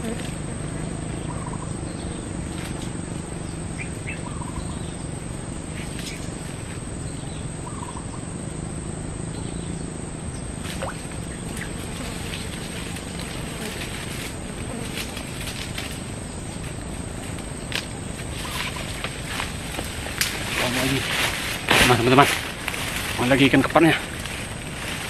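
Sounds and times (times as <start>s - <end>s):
low hum: 0.0s - 25.0s
steady hiss: 0.0s - 25.0s
small bird chirping: 1.0s - 8.3s.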